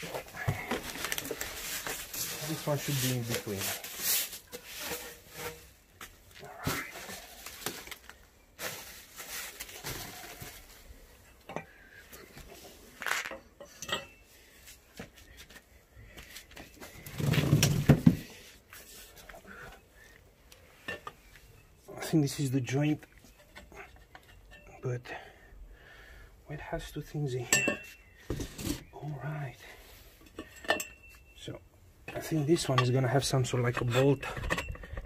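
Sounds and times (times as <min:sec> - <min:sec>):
plastic wrapping rustling: 0:00.0 - 0:05.8, 0:06.4 - 0:11.0
metal tubes clinking: 0:13.0 - 0:14.4, 0:27.4 - 0:28.8, 0:30.2 - 0:35.0.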